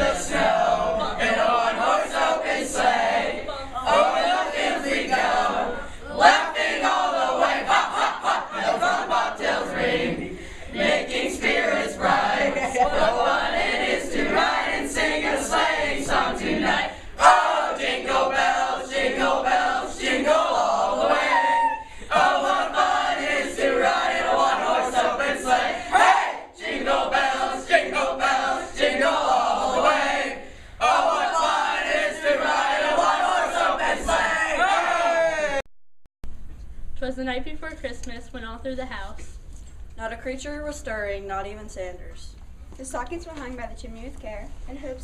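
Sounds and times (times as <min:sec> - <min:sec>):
group singing shouty chorus: 0:00.0 - 0:35.7.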